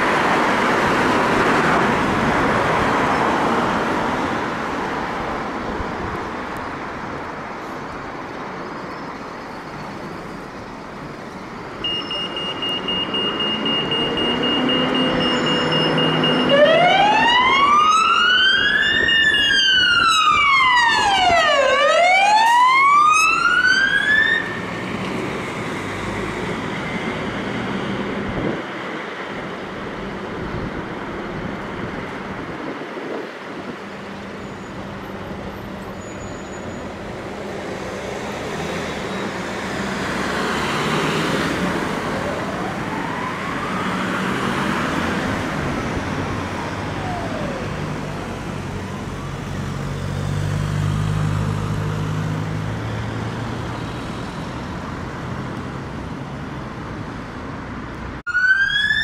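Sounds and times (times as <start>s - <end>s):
urban road traffic: 0.0s - 59.0s
distant siren wailing: 11.8s - 24.9s, 40.5s - 49.8s, 58.2s - 59.0s.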